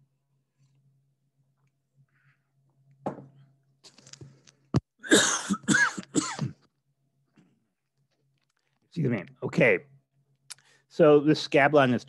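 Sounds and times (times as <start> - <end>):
man clearing his throat: 5.0 - 6.7
man coughing: 5.0 - 6.7.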